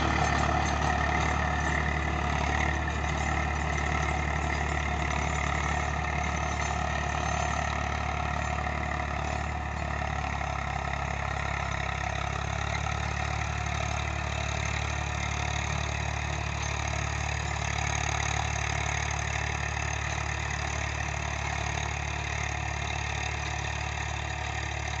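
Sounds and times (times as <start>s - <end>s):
rotavator churning soil: 0.0s - 10.5s
tractor diesel engine running: 0.0s - 25.0s.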